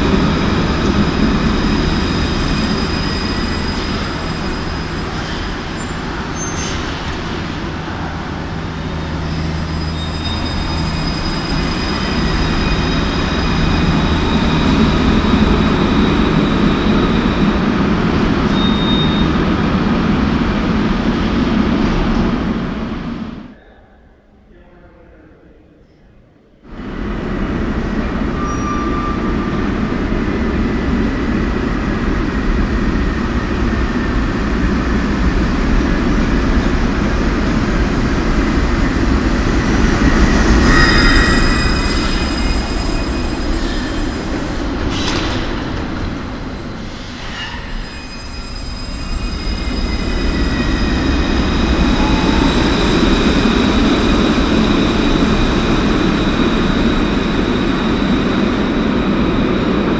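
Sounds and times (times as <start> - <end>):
tram wheels rumbling on rail: 0.0 - 23.6, 26.6 - 59.9
brief squeals: 1.6 - 17.4, 18.4 - 19.4, 28.3 - 29.5, 39.6 - 53.3.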